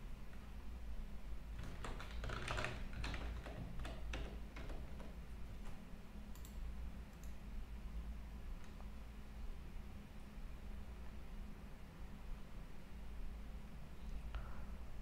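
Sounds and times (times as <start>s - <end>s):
low steady hum: 0.0s - 15.0s
computer keyboard typing: 1.6s - 5.2s, 6.3s - 7.4s.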